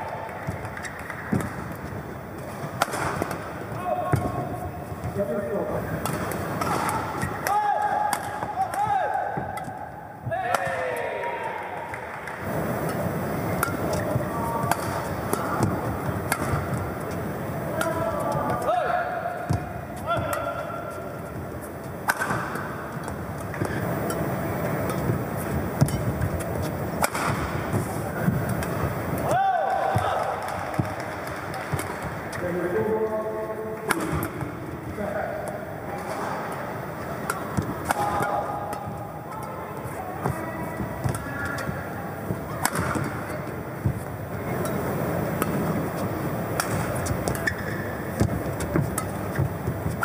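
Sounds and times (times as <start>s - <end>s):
hall background noise: 0.0s - 50.0s
racket striking shuttlecock: 0.4s - 5.2s, 5.9s - 9.8s, 12.9s - 18.7s, 19.3s - 32.2s, 33.8s - 34.5s, 35.5s - 39.6s, 40.2s - 50.0s
low arena rumble: 34.8s - 50.0s.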